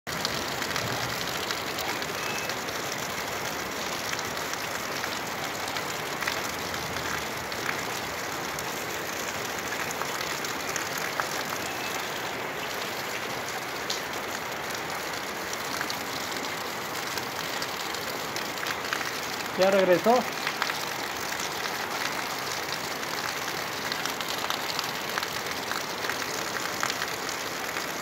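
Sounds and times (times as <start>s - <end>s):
raindrops ticking on surfaces: 0.1s - 28.0s
heavy rain hissing: 0.2s - 3.7s, 18.7s - 25.2s.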